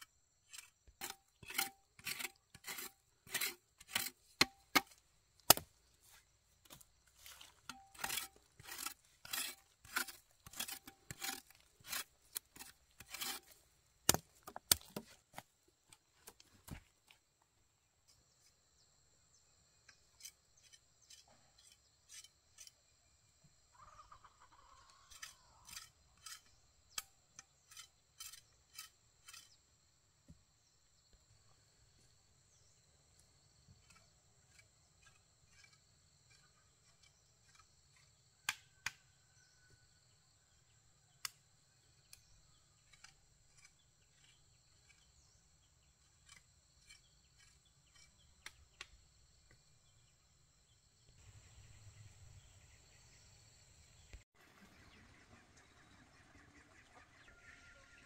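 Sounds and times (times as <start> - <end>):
sharp chopping strikes: 4.4 - 5.7.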